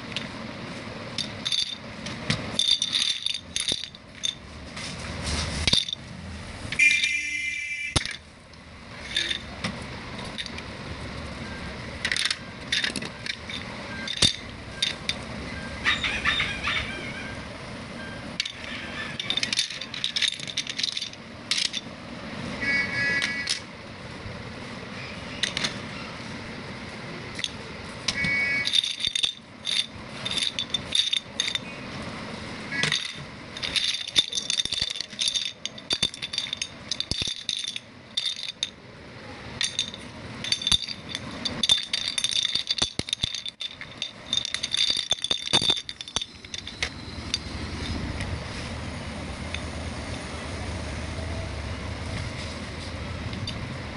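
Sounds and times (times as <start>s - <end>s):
plastic dominoes clattering: 1.2s - 1.8s, 2.6s - 4.4s, 12.0s - 15.1s, 18.4s - 21.8s, 28.6s - 31.6s, 32.8s - 38.7s, 39.6s - 46.9s.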